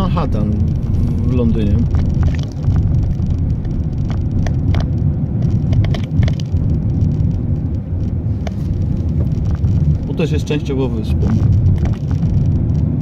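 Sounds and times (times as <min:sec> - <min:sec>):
car road and engine rumble: 0:00.0 - 0:13.0.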